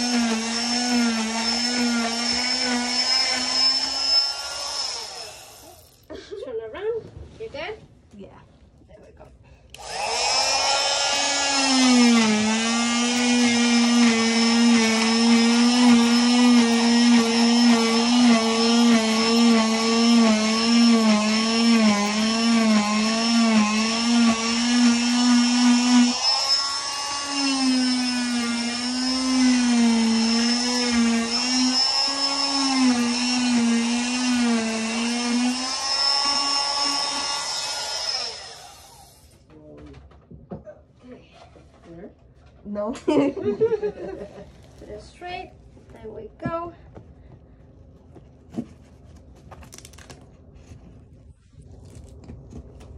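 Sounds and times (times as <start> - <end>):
electric cast saw whining: 0.0 - 6.0, 9.8 - 39.4.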